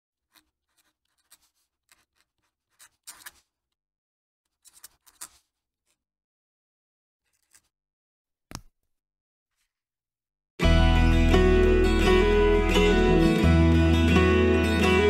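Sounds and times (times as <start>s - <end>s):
pen nib scratching on paper: 0.2s - 3.6s, 4.5s - 5.6s.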